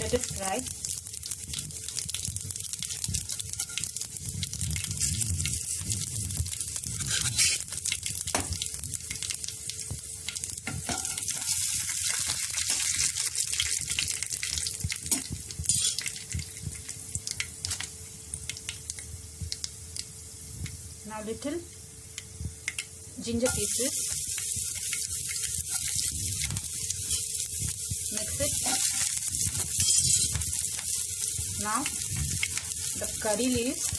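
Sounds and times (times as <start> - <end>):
seeds sizzling in hot oil: 0.0 - 33.9
spatula stirring in pan: 1.2 - 8.0, 15.7 - 16.5, 23.5 - 33.9.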